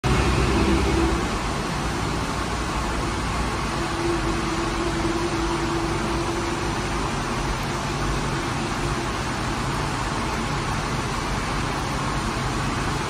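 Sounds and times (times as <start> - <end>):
machinery hum and rush: 0.0 - 13.0.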